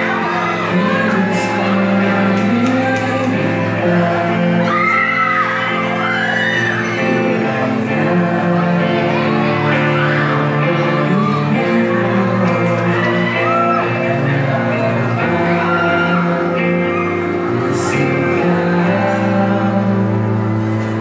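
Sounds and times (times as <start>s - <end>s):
person singing: 0.0s - 21.0s
pop-rock band playing live: 0.0s - 21.0s.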